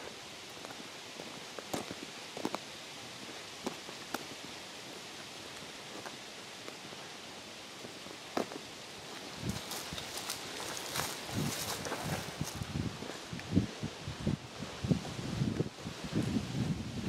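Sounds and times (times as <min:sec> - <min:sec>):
steady outdoor hiss: 0:00.0 - 0:17.0
footsteps on pavement: 0:00.5 - 0:07.0, 0:07.8 - 0:13.5.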